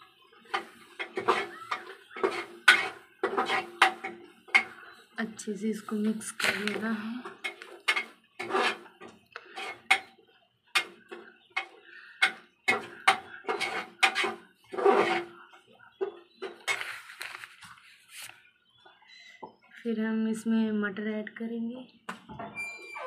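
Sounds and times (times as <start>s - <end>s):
metal ladle scraping a pot: 0.3s - 5.0s, 5.8s - 15.6s, 16.2s - 17.4s.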